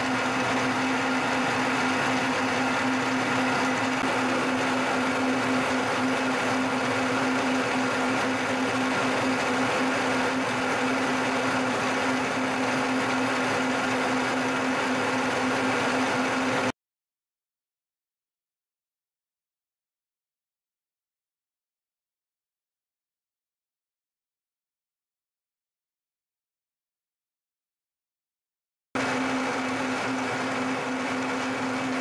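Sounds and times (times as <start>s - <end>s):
milling machine cutting metal: 0.0s - 16.7s, 29.0s - 32.0s.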